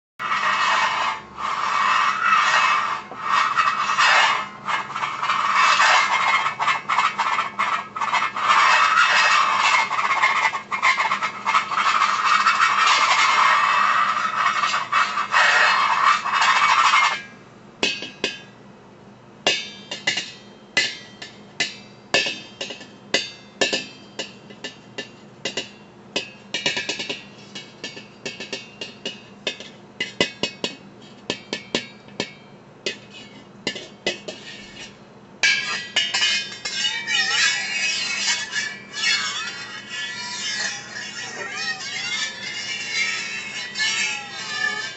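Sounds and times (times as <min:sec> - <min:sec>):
wire whisk scraping pot lid: 0:00.2 - 0:18.5, 0:19.5 - 0:44.9
wavering whine: 0:34.5 - 0:44.9.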